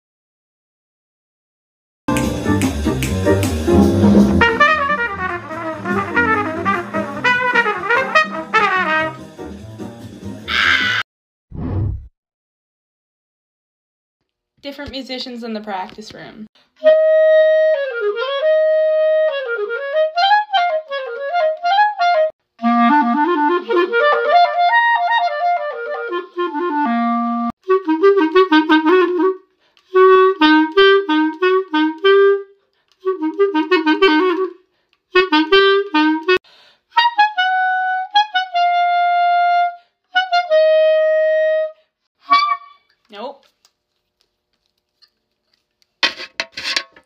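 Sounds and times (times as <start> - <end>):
solo clarinet playing: 4.0 - 9.2, 16.8 - 42.9.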